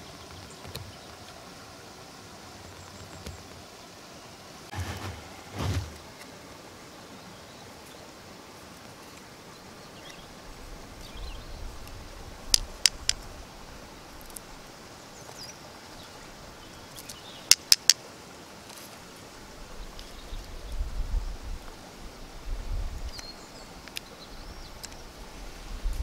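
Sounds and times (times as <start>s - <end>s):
outdoor hiss: 0.0s - 26.0s
wooden clicks: 12.5s - 13.3s, 17.5s - 18.0s.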